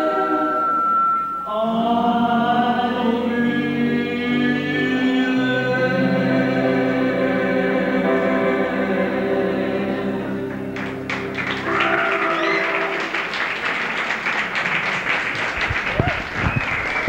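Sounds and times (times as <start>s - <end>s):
held keyboard chord: 0.0s - 13.6s
audience applause and cheering: 10.5s - 17.0s.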